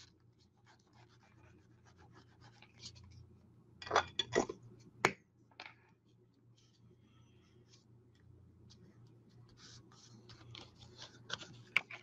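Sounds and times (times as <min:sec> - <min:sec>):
paper scraping and handling: 0:08.8 - 0:12.0.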